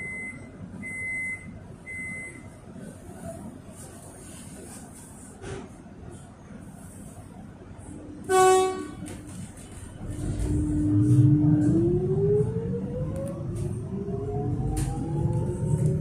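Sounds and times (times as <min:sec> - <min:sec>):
low train rumble: 0:01.5 - 0:16.0
train horn toot: 0:08.2 - 0:09.2.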